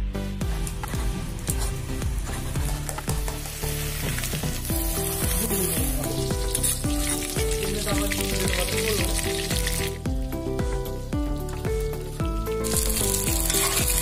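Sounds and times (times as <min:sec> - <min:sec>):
background music with beat: 0:00.0 - 0:14.0
food sizzling in hot oil: 0:01.3 - 0:14.0
spatula stirring: 0:12.6 - 0:14.0.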